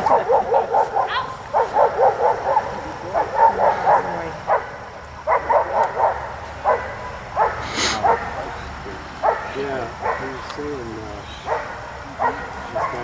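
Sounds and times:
dog barking in quick bursts: 0.0 - 8.4.

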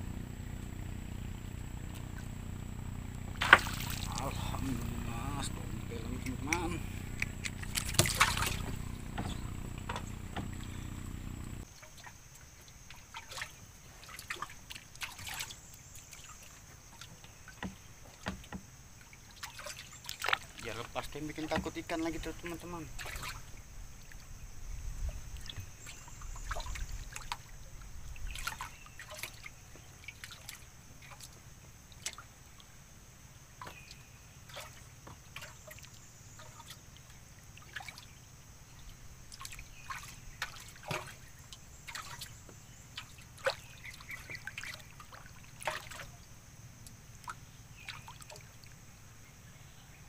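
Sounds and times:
low rumble: 0.0 - 11.6
paddle splashing in water: 0.0 - 24.4, 25.0 - 32.7, 33.5 - 49.0
water trickling and dripping: 1.9 - 49.0.

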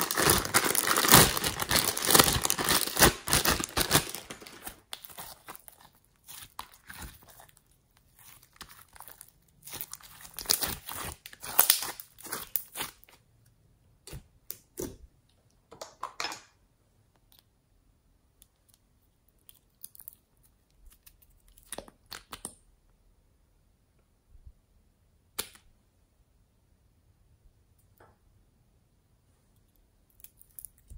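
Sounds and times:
slime crackling and tearing: 0.0 - 13.2.

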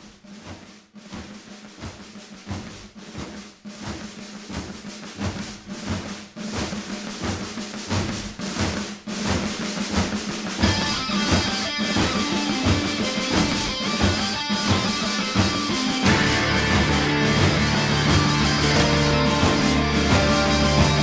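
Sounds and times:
heavy rock drum beat: 0.0 - 21.0
steady low note: 16.0 - 21.0.

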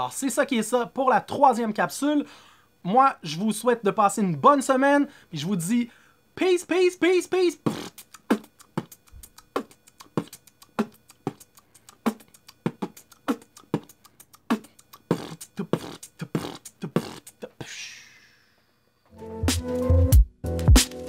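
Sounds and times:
beatboxing: 7.2 - 18.4.

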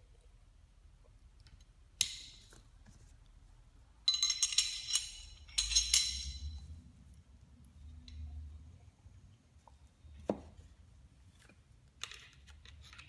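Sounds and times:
metallic clinks and rattles: 4.0 - 6.8.

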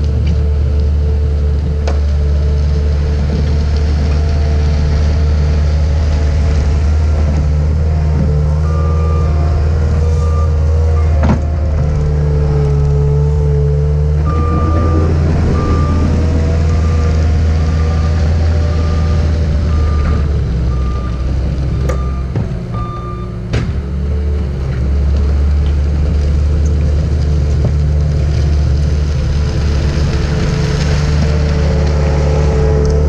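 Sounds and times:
diesel engine running hard: 0.0 - 33.0
backup alarm beeping: 14.2 - 21.2.

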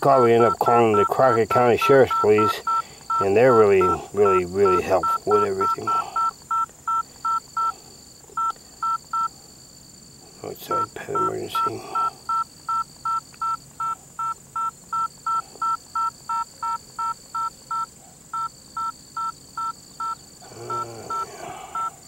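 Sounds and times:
phone keypad beeps: 0.0 - 7.7, 8.4 - 9.3, 10.7 - 21.9
person muttering: 3.2 - 6.2, 10.8 - 12.1, 20.4 - 21.9.

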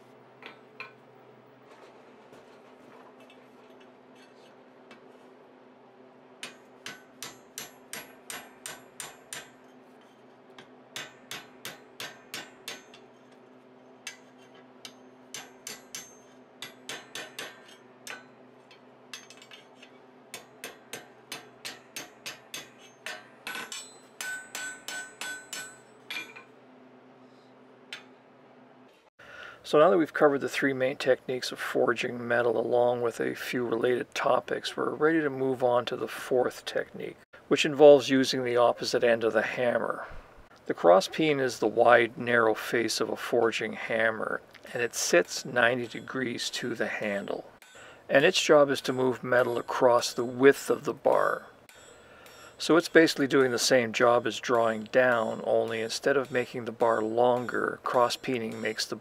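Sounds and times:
hammer striking iron on anvil: 6.4 - 26.5, 27.9 - 28.2, 45.8 - 46.2, 53.3 - 59.0
faint metal ringing: 12.2 - 26.6, 45.6 - 59.0.

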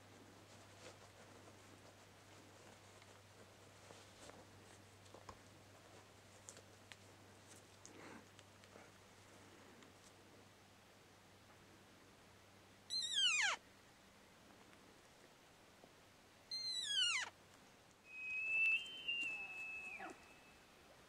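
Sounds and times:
elk high whistling bugle: 18.0 - 20.8
elk calls sliding down in pitch: 18.1 - 20.6.

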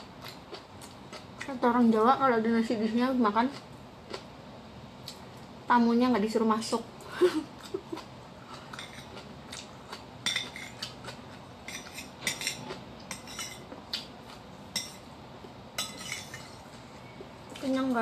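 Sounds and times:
metal spoon clinking on ceramic bowl: 10.2 - 10.7, 11.7 - 13.6, 15.8 - 16.5.

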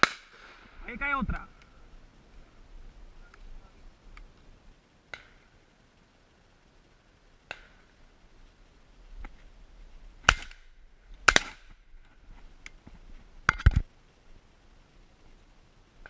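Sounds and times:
shotgun shots: 10.3 - 10.6, 11.2 - 11.6.

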